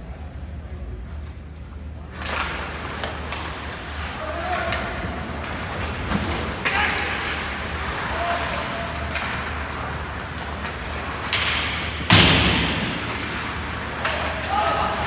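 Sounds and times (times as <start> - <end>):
steady low hum: 0.0 - 15.0
hockey stick and puck knocks: 9.1 - 14.5
loud echoing bang: 11.4 - 13.3.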